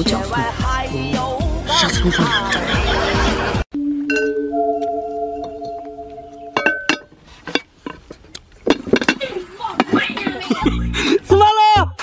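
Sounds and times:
rapping over music: 0:00.0 - 0:02.5
chime-like bell tones: 0:03.7 - 0:07.0.

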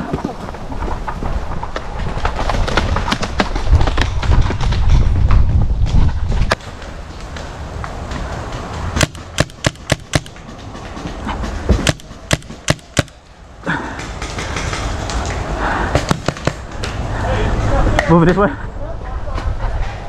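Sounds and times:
paintball markers firing: 0:08.9 - 0:11.1, 0:11.7 - 0:13.3, 0:16.0 - 0:16.9.

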